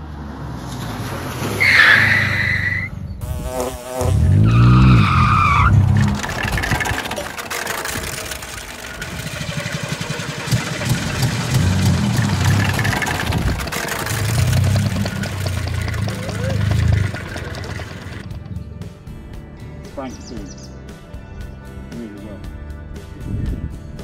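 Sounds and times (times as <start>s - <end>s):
engine revving: 0.0s - 18.4s
loud high whines: 1.6s - 18.2s
car engine running: 4.1s - 18.3s.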